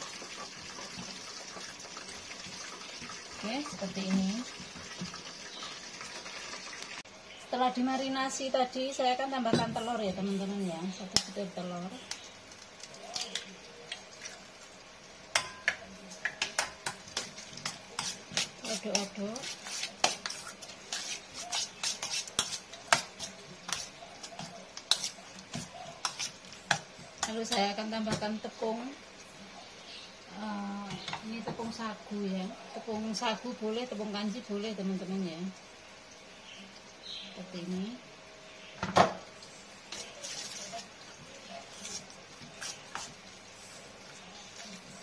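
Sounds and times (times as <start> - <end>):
spoon stirring and scraping: 15.3 - 27.8, 39.4 - 45.0.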